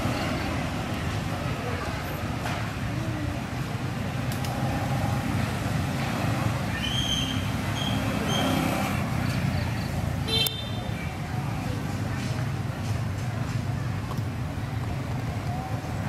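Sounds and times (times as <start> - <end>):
sharp squeak: 6.8 - 8.6.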